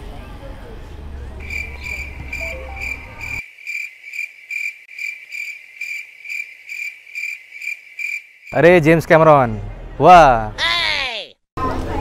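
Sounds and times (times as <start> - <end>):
street background noise: 0.0 - 3.7, 8.5 - 12.0
crickets chirping: 1.4 - 8.6.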